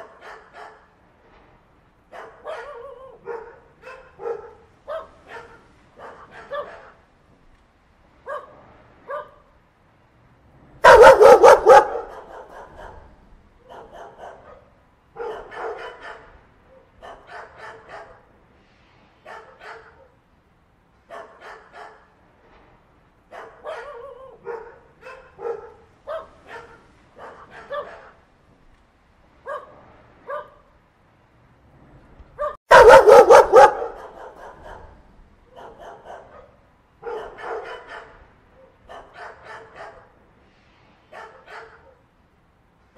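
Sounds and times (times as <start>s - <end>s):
dog barking: 0.0s - 0.9s, 2.1s - 7.0s, 8.2s - 9.5s, 10.8s - 18.3s, 19.2s - 20.2s, 21.1s - 22.2s, 23.3s - 28.2s, 29.4s - 30.7s, 32.4s - 40.2s, 41.1s - 42.1s.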